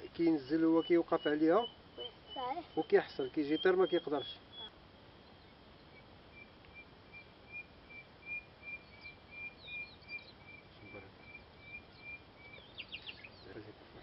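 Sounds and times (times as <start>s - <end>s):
bird repeating high note: 0.7s - 4.8s.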